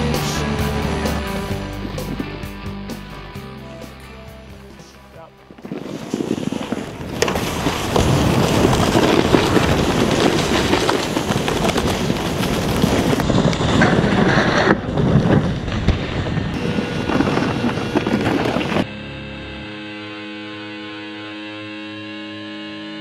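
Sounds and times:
guitar music: 0.0 - 5.6, 18.8 - 23.0
snowboard scraping over snow: 0.0 - 18.9
wind buffeting microphone: 1.5 - 2.7, 5.4 - 18.9.

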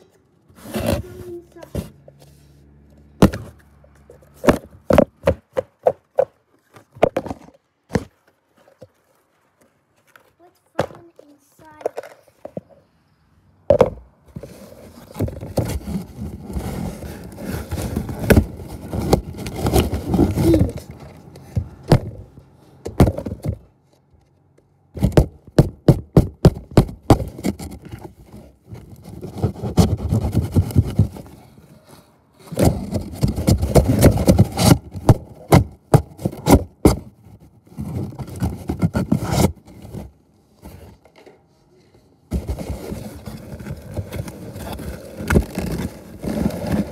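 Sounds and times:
scraping on phone microphone: 0.0 - 2.6, 13.8 - 22.4, 26.8 - 41.1, 42.3 - 46.9.

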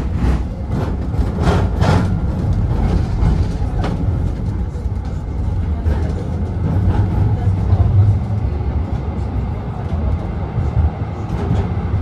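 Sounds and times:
tram rumbling on track: 0.0 - 12.0.

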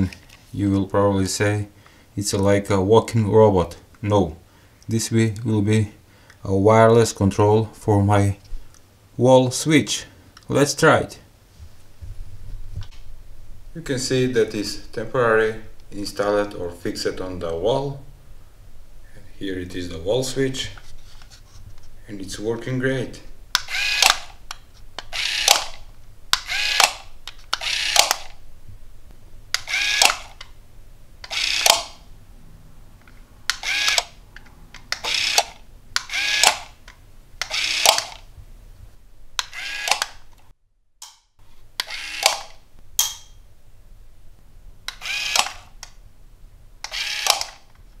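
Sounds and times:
small motor whirring in bursts: 26.4 - 27.0, 29.6 - 30.2, 45.0 - 45.5, 46.9 - 47.4.

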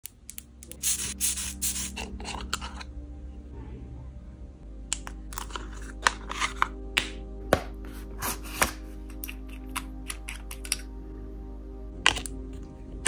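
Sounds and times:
faint background music: 0.0 - 13.0
atomiser spray puffs: 0.7 - 2.1
spatula scraping jar: 1.2 - 2.9, 5.3 - 6.7.

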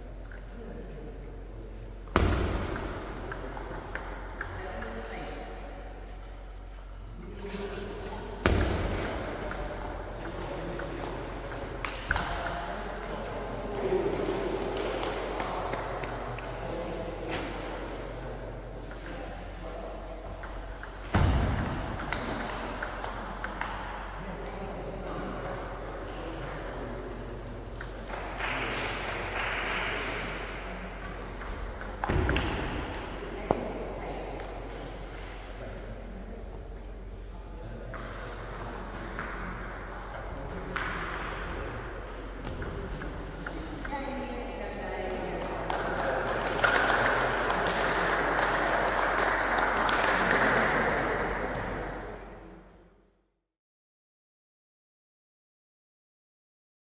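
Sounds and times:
loud thud in hall: 21.1 - 22.0.

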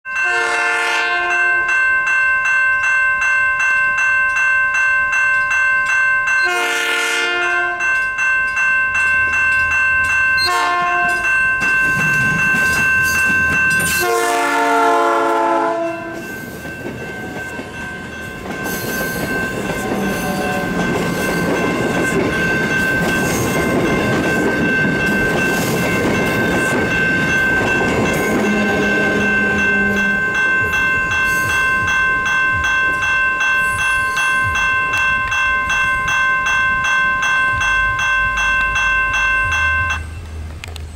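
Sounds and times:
crossing bell ringing: 0.0 - 40.7
train horn blasts: 0.2 - 1.7, 6.4 - 7.9, 10.4 - 11.3, 14.0 - 16.3
train wheels on rails: 4.3 - 40.9.

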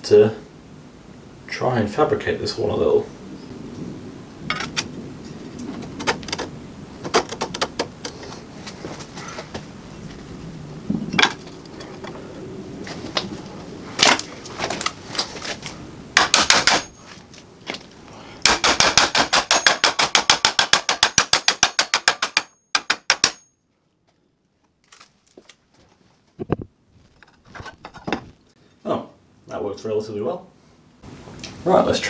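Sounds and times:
hammer blows on sheet steel: 16.2 - 17.1, 18.4 - 23.5.

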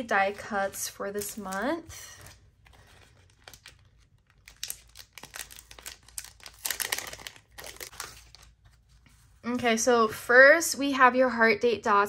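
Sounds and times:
plastic sleeve crinkling: 0.2 - 9.4.

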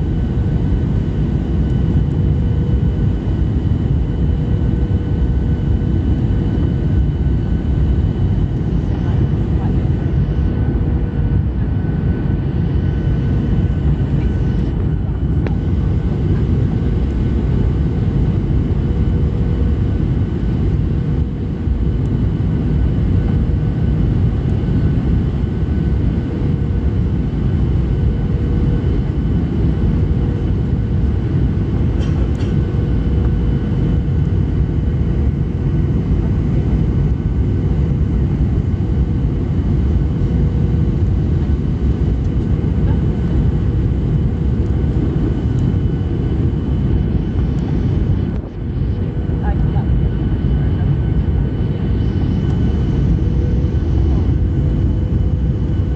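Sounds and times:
jet engines and rushing air: 28.8 - 55.9.

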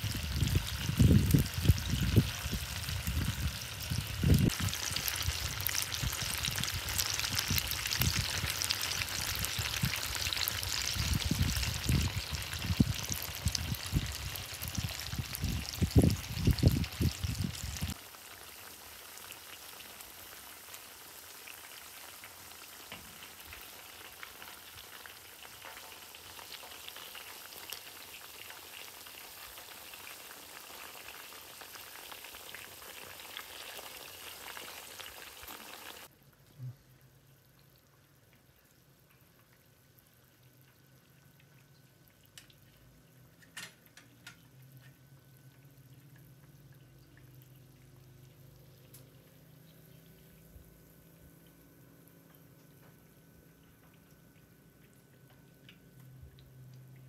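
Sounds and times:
fish sizzling in hot oil: 0.0 - 36.1, 39.4 - 57.0.

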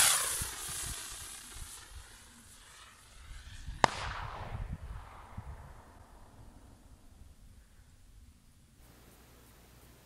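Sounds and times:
firework bang: 0.0 - 7.0
firework rocket hissing: 0.0 - 7.0.

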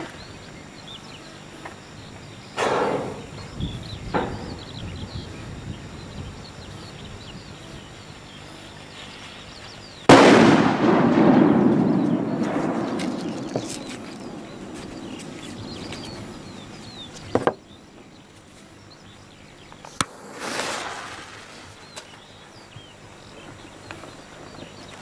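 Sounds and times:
small birds chirping: 0.0 - 10.2, 11.2 - 25.0
firecracker blast rumble: 10.1 - 17.5, 20.0 - 22.2.

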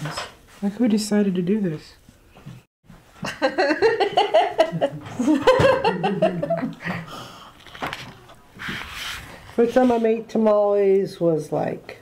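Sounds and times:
people laughing: 3.2 - 7.1.

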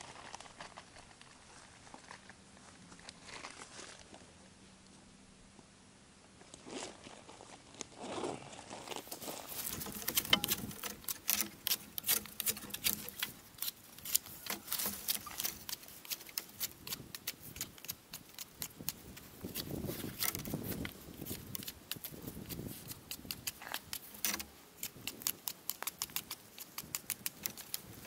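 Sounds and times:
knife whittling wood: 9.5 - 28.0.

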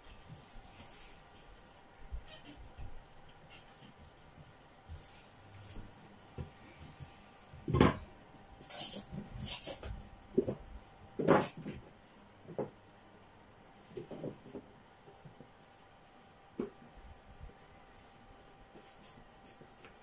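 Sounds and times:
kitchenware scraping: 7.8 - 9.9.

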